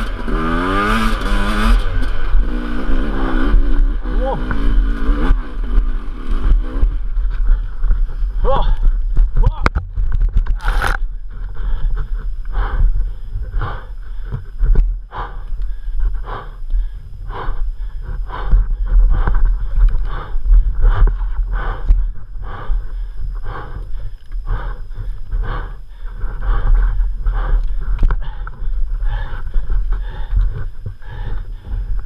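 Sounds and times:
man breathing hard through mouth: 0:06.3 - 0:09.4, 0:10.5 - 0:32.0.

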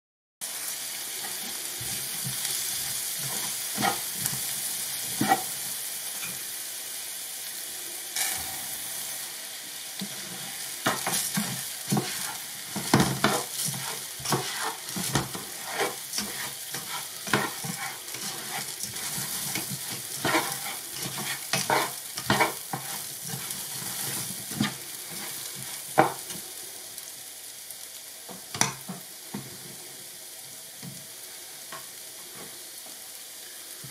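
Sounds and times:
vegetables sizzling in oil: 0:00.4 - 0:33.9
spatula scraping a pan: 0:01.2 - 0:05.6, 0:08.2 - 0:08.8, 0:10.0 - 0:26.4.

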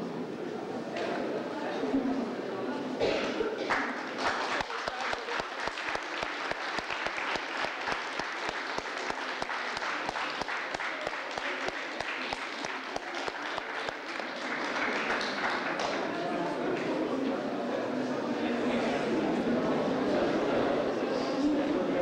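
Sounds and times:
audience applauding: 0:03.6 - 0:16.5.

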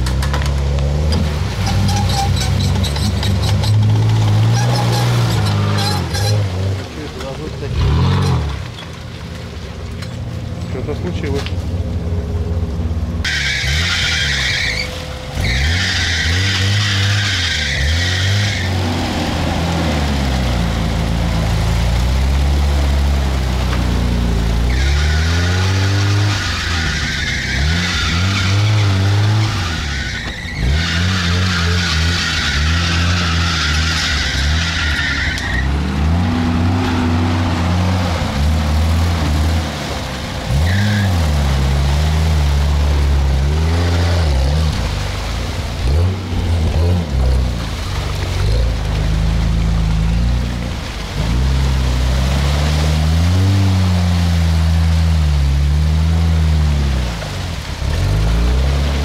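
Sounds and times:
car engine revving: 0:00.0 - 0:08.8, 0:10.8 - 0:59.0
wheels spinning on rough ground: 0:00.0 - 0:53.0.

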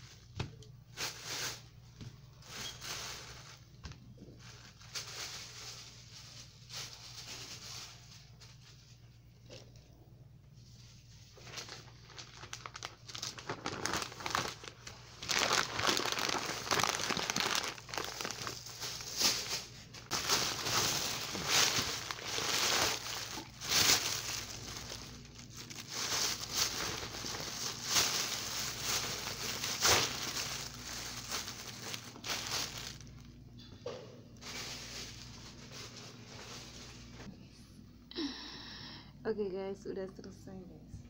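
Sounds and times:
plastic bag crinkling: 0:01.0 - 0:03.8, 0:04.4 - 0:09.6, 0:11.2 - 0:33.4, 0:34.4 - 0:37.3.

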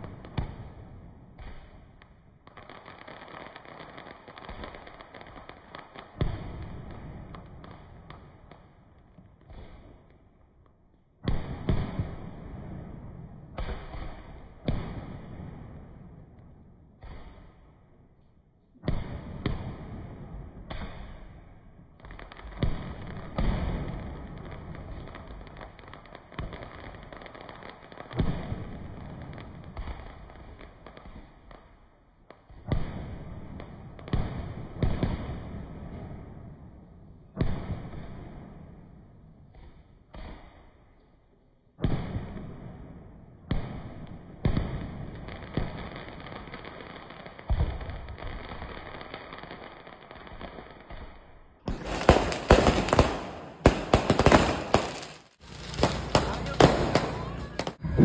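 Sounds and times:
fireworks booming: 0:03.5 - 0:10.2, 0:11.2 - 0:17.8, 0:18.7 - 0:31.4, 0:32.4 - 0:40.8, 0:41.8 - 0:58.0
crackling rumbling echo: 0:51.2 - 0:58.0.

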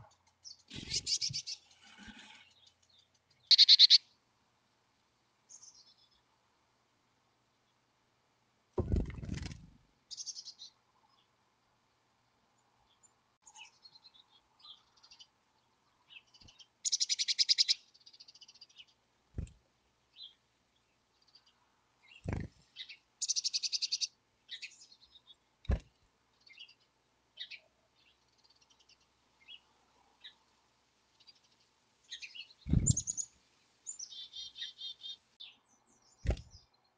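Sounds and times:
chickadees chirping: 0:00.0 - 0:01.7, 0:03.5 - 0:04.0, 0:16.4 - 0:17.8, 0:22.1 - 0:24.8, 0:32.1 - 0:33.3
buzzy pulsed bird calls: 0:00.7 - 0:01.6, 0:03.5 - 0:04.0, 0:32.7 - 0:33.3
low thump: 0:08.8 - 0:09.3.

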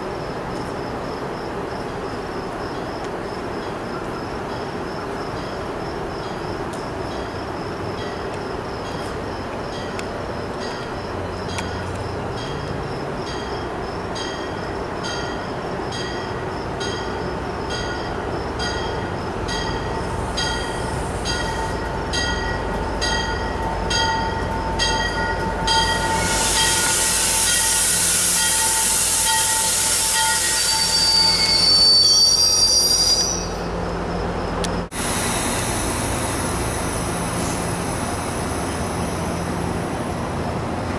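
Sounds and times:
rumble of approaching train: 0:00.0 - 0:40.9
train bell ringing: 0:03.6 - 0:34.6
loud hiss: 0:20.0 - 0:21.9, 0:25.9 - 0:31.7, 0:34.9 - 0:40.2
brake and wheel squeal: 0:25.7 - 0:33.8.

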